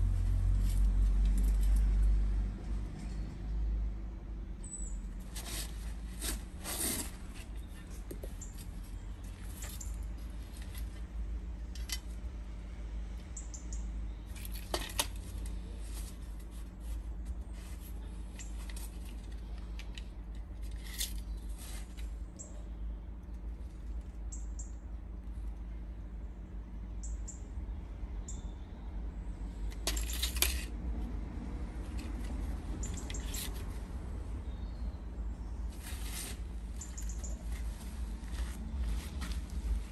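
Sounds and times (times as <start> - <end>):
tape measure clicking and rattling: 29.7 - 30.8, 31.9 - 33.6
steady low rumble: 33.6 - 39.9.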